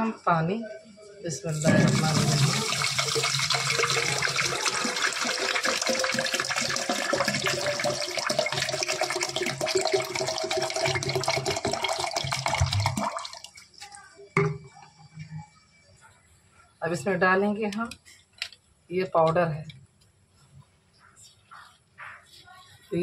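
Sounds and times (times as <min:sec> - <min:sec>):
water pouring into plastic jug: 0:01.5 - 0:13.8.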